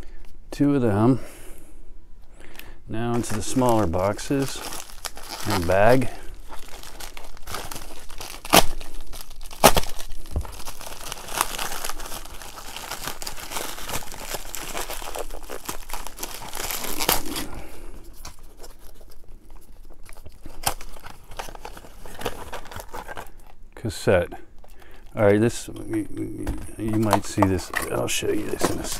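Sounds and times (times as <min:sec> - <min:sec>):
cardboard mailer rustling: 0:03.0 - 0:19.2, 0:25.2 - 0:28.9
plastic bag crinkling and tearing: 0:03.0 - 0:23.6, 0:24.6 - 0:28.9.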